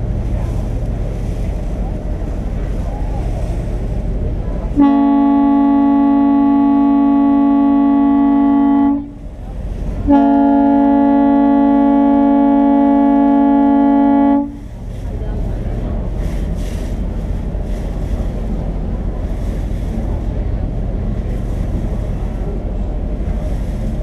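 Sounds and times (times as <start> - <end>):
water noise: 0.0 - 24.0
ferry horn blasts: 4.7 - 9.3, 10.0 - 14.7.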